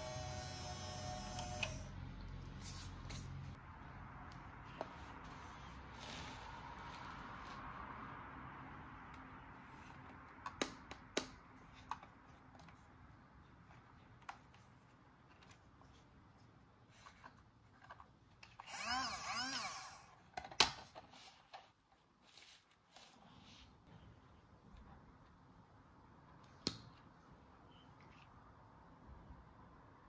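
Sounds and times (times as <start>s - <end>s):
toy motor whirring: 0.0s - 2.0s, 18.6s - 20.2s.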